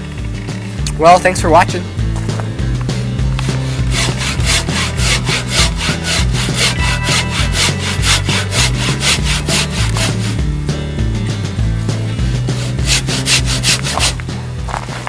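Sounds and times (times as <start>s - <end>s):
handsaw cutting wood: 3.4s - 10.4s, 12.4s - 14.2s.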